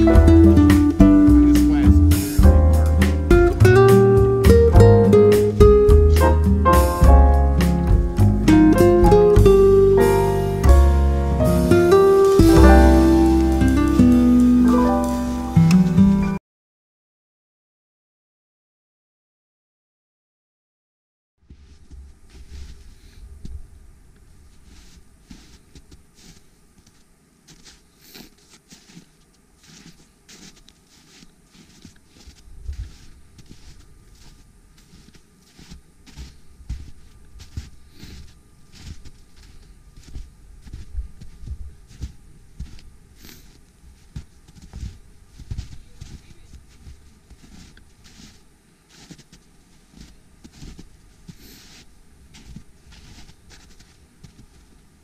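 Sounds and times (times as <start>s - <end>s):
footsteps in snow: 5.4s - 15.6s, 21.4s - 55.0s.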